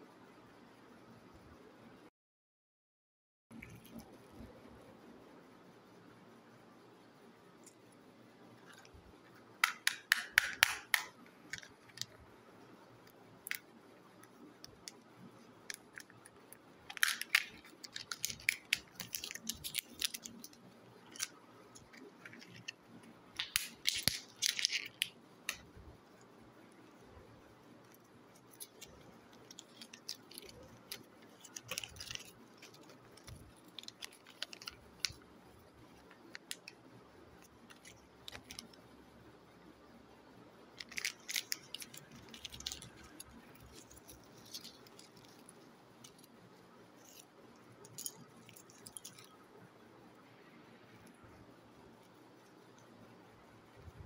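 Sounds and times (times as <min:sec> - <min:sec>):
plastic capsules crackling clicks: 0:09.6 - 0:12.3, 0:13.2 - 0:25.9, 0:27.9 - 0:38.8, 0:40.8 - 0:46.4, 0:47.0 - 0:49.4.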